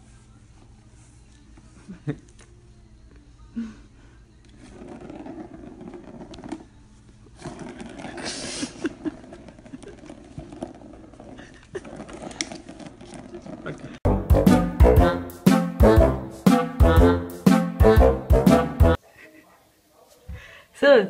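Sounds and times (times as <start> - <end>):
scratch on cardboard pad: 4.6 - 6.8
plastic ball rumbling around track: 4.6 - 14.0.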